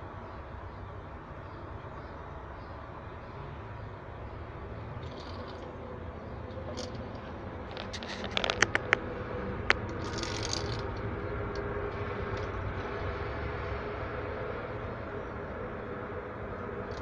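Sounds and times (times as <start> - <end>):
low background noise: 0.0 - 17.0
brief rustle: 7.7 - 9.0.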